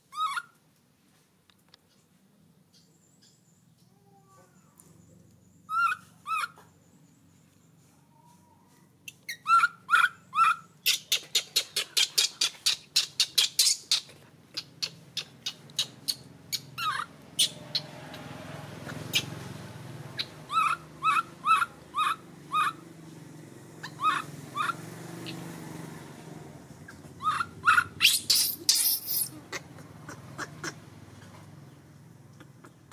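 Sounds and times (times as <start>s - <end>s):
baby monkey crying: 0.1s - 0.5s, 5.7s - 6.6s, 9.3s - 17.9s, 20.2s - 22.8s, 23.8s - 25.4s, 26.8s - 31.4s.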